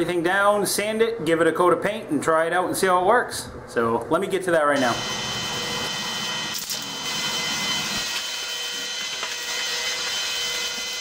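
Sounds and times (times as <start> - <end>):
motor whining and hissing: 5.0 - 11.0.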